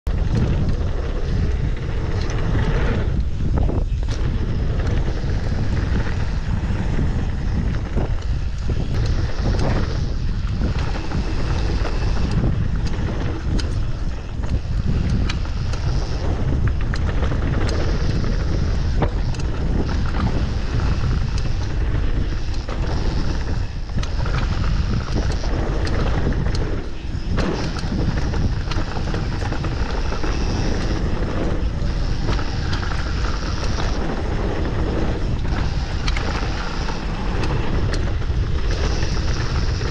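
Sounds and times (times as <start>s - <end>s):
wind buffeting microphone: 0.0s - 39.9s
bike rattling over rocks: 0.1s - 39.9s.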